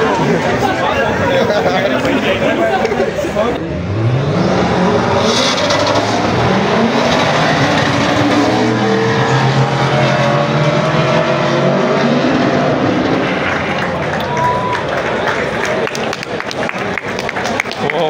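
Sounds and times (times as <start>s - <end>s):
drag car engine accelerating: 0.0s - 17.5s.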